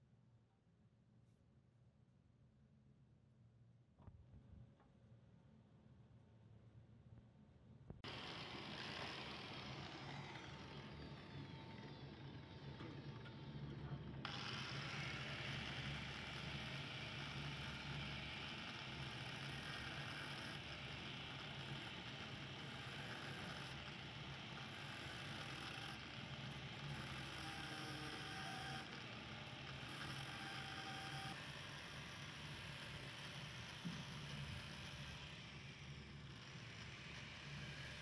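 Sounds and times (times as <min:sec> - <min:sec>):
electric cutter motor hum: 0:08.0 - 0:38.0.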